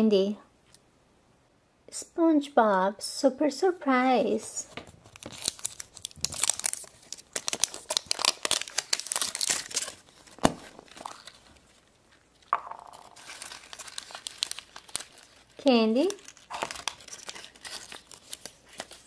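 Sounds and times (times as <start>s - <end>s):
plastic egg handling: 4.8s - 19.0s
foil wrapper crinkling: 5.0s - 19.0s.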